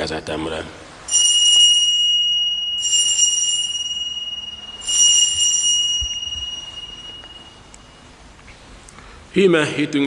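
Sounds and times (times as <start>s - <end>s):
small altar bell ringing: 1.0s - 8.4s.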